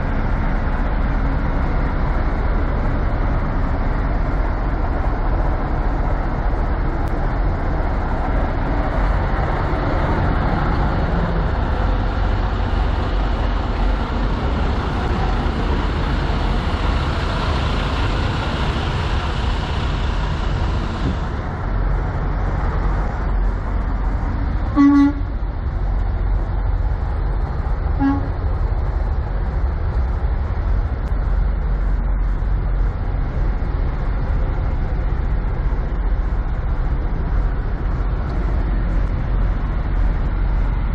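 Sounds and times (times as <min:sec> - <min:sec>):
idling trucks and traffic rumble: 0:00.0 - 0:40.9
short vehicle horn toot: 0:24.7 - 0:25.3, 0:28.0 - 0:28.3.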